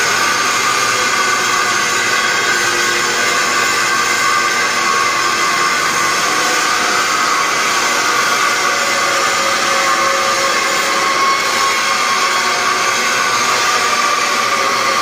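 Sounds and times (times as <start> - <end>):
grinder grinding metal: 0.0 - 15.0.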